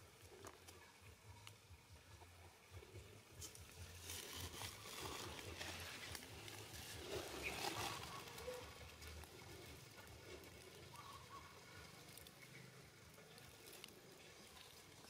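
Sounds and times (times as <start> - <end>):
dry leaves rustling and crackling: 3.3 - 15.0.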